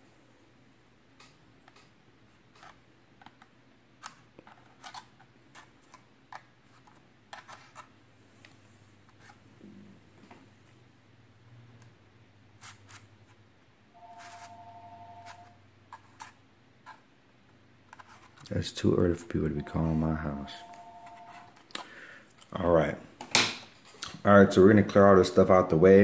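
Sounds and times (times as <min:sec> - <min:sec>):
small plastic clicks and scrapes: 0:02.5 - 0:08.6.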